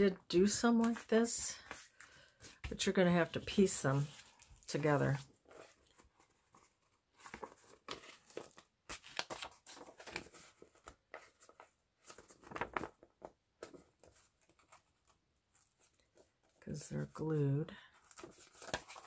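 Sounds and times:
paper pages rustling: 0:00.5 - 0:16.6, 0:17.9 - 0:19.0.

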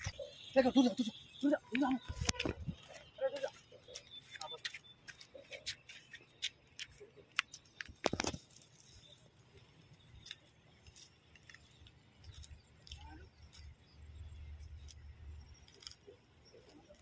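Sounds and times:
footsteps on stony riverbank: 0:01.0 - 0:08.7.

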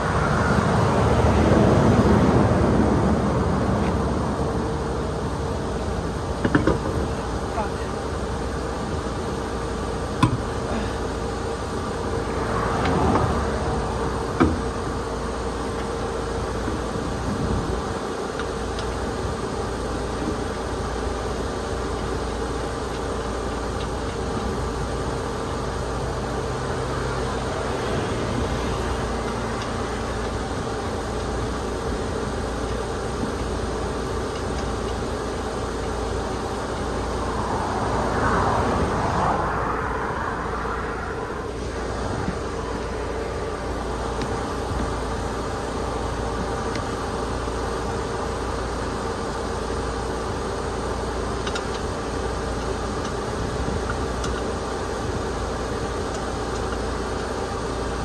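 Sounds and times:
car engine and road hum: 0:00.0 - 0:58.0
vehicle whooshing past: 0:37.1 - 0:42.2.

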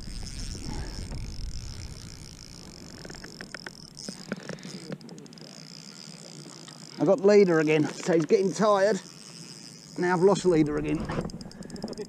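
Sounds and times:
low rumble: 0:00.0 - 0:03.9
fishing reel clicks: 0:00.0 - 0:12.0
insect drone: 0:00.0 - 0:12.0.

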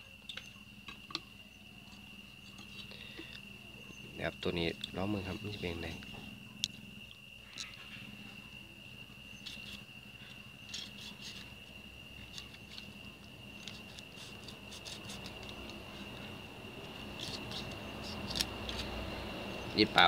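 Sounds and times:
insect trill: 0:00.0 - 0:20.0
knife scraping fish scales: 0:10.6 - 0:11.6, 0:13.5 - 0:15.7, 0:17.0 - 0:19.0.

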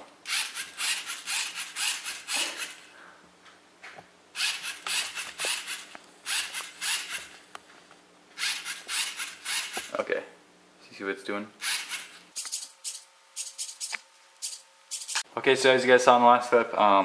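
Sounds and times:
toy robot motor and gears: 0:00.2 - 0:02.8, 0:04.4 - 0:07.3, 0:08.4 - 0:10.0, 0:11.6 - 0:15.2.

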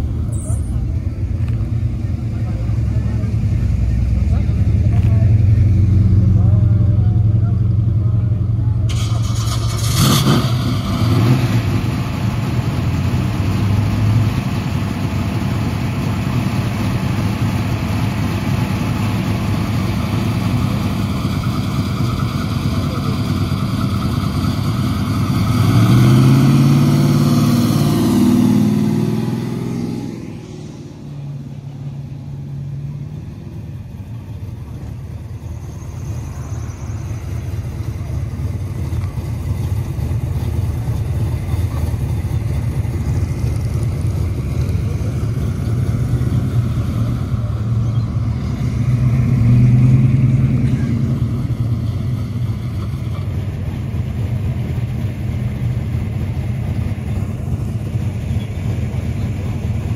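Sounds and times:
car engines running: 0:00.0 - 0:59.9
engine revving up: 0:08.9 - 0:11.9, 0:25.0 - 0:31.1, 0:44.7 - 0:52.7.

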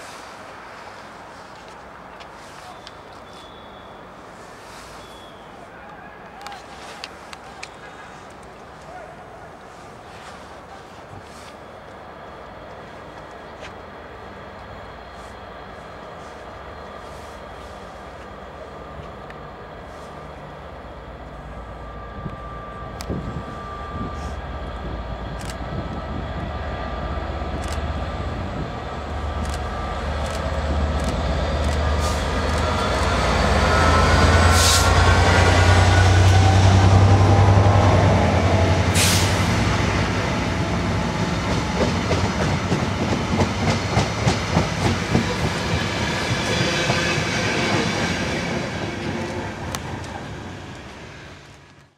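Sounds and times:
diesel locomotive engine drone: 0:00.0 - 0:51.9
clickety-clack of train wheels: 0:40.5 - 0:51.9.

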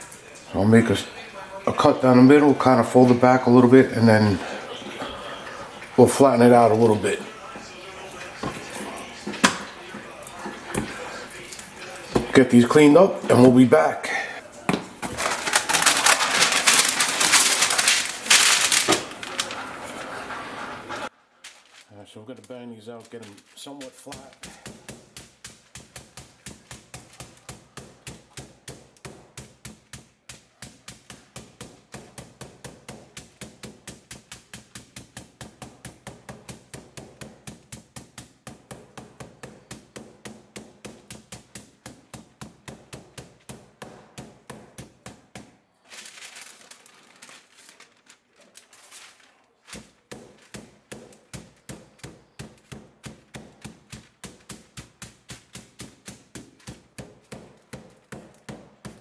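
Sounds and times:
paper rustling: 0:14.5 - 0:59.0
meat mallet pounding meat: 0:24.0 - 0:45.6, 0:49.7 - 0:59.0.

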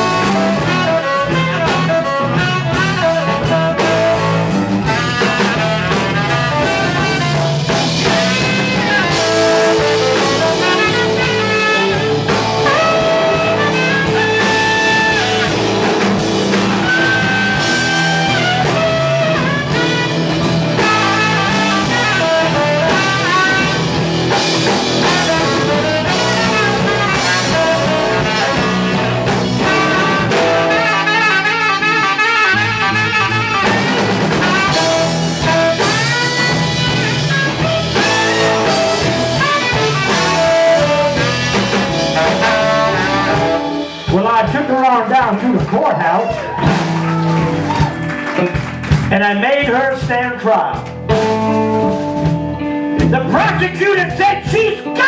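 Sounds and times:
harmonica: 0:00.0 - 0:43.9
tenor saxophone: 0:00.0 - 0:44.1
bass guitar: 0:00.0 - 0:55.0
drums: 0:00.0 - 0:55.0
electric guitar: 0:00.0 - 0:55.0.

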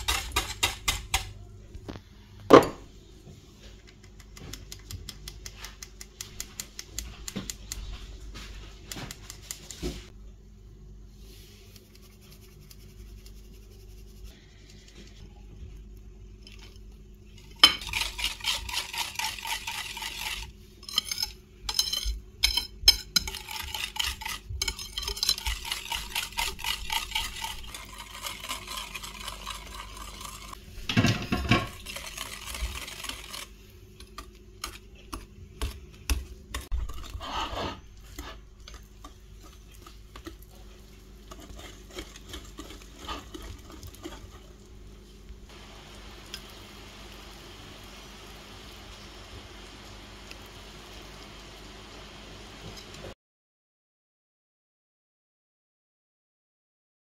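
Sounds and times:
whisk clattering in ceramic bowl: 0:00.0 - 0:01.3, 0:17.4 - 0:33.5, 0:41.3 - 0:44.4.

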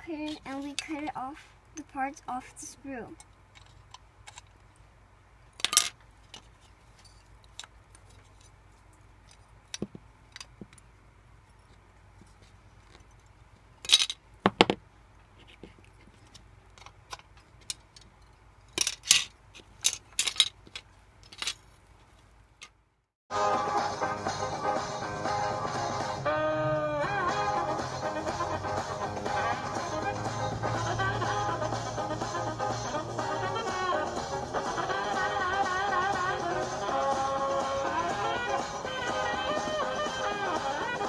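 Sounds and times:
plastic parts clicking: 0:03.2 - 0:04.6, 0:18.7 - 0:21.6.

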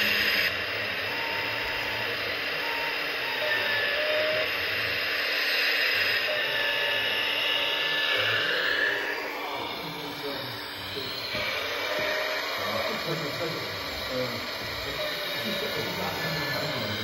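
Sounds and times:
toy excavator hydraulic whir: 0:00.0 - 0:17.0.

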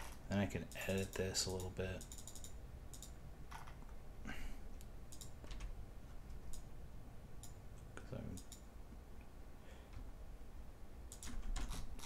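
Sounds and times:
computer mouse clicking: 0:00.7 - 0:03.2, 0:04.8 - 0:05.7, 0:07.4 - 0:08.6, 0:11.1 - 0:12.0.

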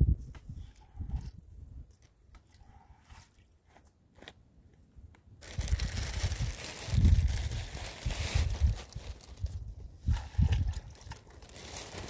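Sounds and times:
leaves rustling and crunching: 0:05.4 - 0:09.6, 0:10.8 - 0:12.0.

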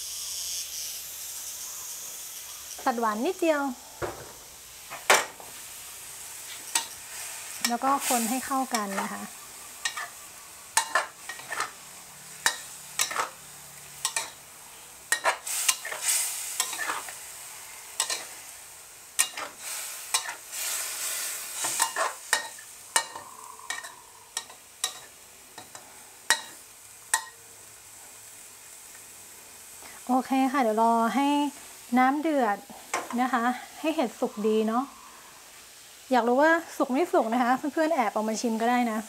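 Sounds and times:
curry sizzling: 0:00.0 - 0:39.0
metal ladle scraping a wok: 0:06.4 - 0:10.2, 0:10.8 - 0:11.8, 0:12.4 - 0:13.4, 0:15.1 - 0:17.2, 0:17.9 - 0:18.5, 0:19.2 - 0:26.6.

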